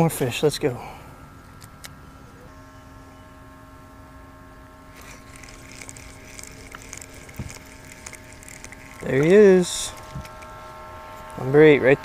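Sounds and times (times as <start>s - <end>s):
small motor humming: 2.1s - 12.0s.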